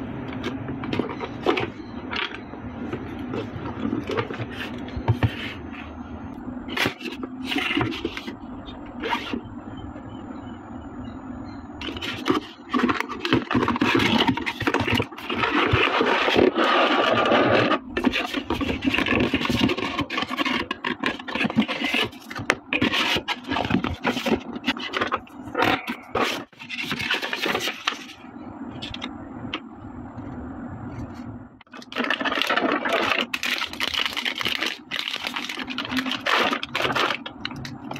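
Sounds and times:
cardboard and plastic packaging scraping: 0.4 - 5.9, 6.7 - 8.4, 11.8 - 28.2, 31.1 - 37.9
paper sheet rustling: 30.9 - 37.3.

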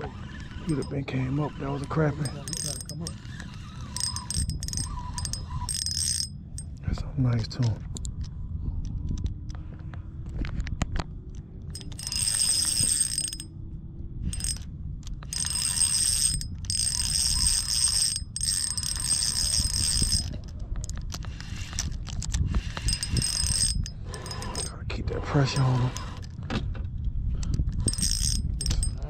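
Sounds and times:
fishing reel drag buzzing: 0.0 - 6.7, 11.8 - 13.5, 14.3 - 14.6, 15.3 - 20.4, 22.6 - 24.7, 27.8 - 29.0.

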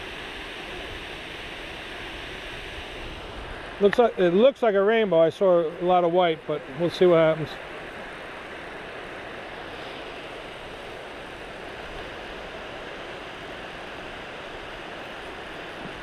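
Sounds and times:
steady rushing noise: 0.0 - 16.0.

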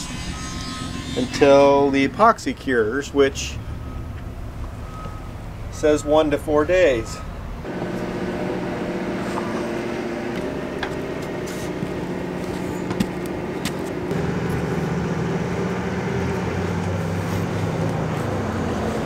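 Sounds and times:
engine humming: 0.0 - 19.0.

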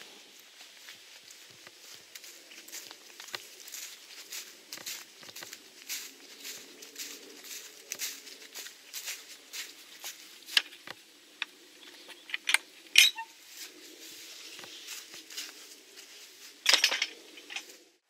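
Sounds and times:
metal gate latch clinking: 12.2 - 13.2.

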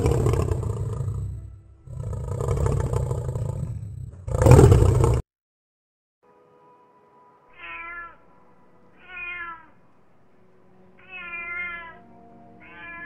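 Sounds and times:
cat meowing: 7.5 - 8.3, 8.9 - 9.8, 11.0 - 13.0.

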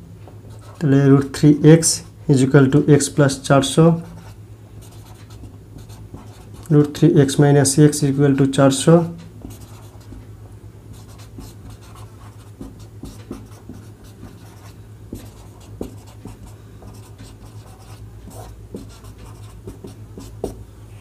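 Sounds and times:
steady low hum: 0.0 - 21.0
handwriting strokes: 9.4 - 10.2, 11.0 - 20.6.

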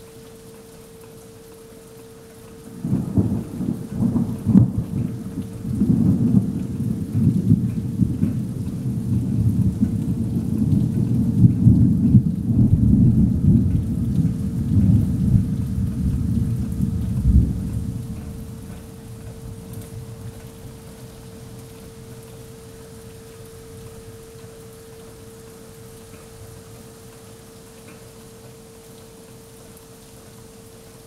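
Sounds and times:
thunder rumbling: 2.7 - 22.2.

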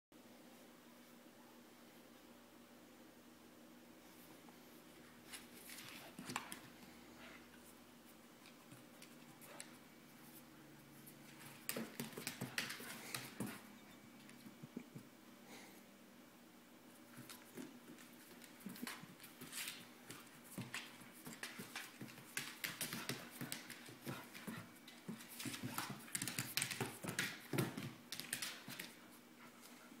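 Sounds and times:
puppy claws on hardwood floor: 5.2 - 7.7, 8.4 - 14.8, 17.0 - 29.9.

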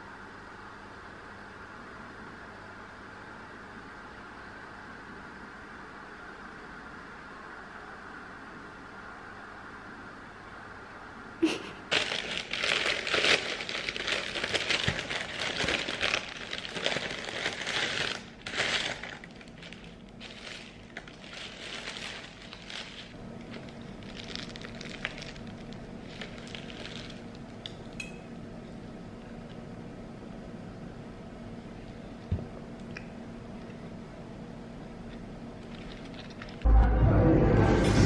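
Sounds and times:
paper bag crinkling: 11.9 - 27.5, 35.6 - 36.7.

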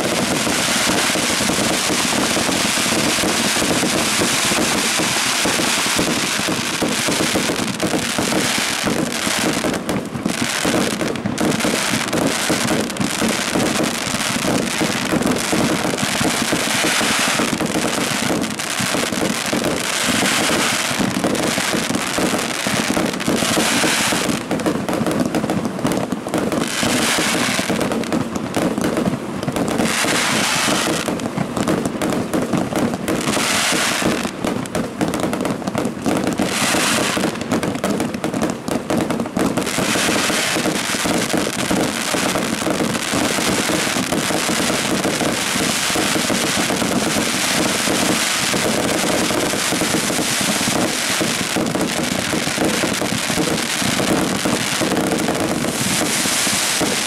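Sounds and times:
fireworks bursting: 0.0 - 57.0
hissing crackle: 39.6 - 57.0.

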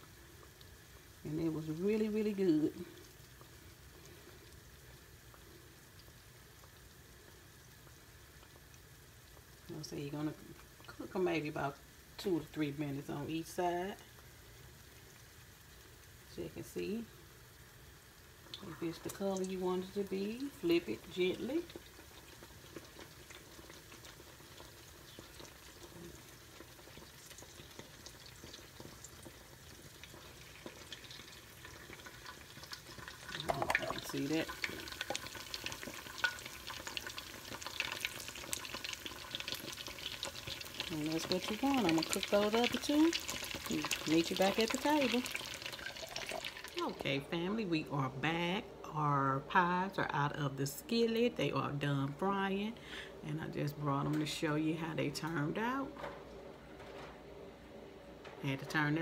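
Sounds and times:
hot oil sizzling: 0.0 - 47.2
oil popping: 20.5 - 47.0.

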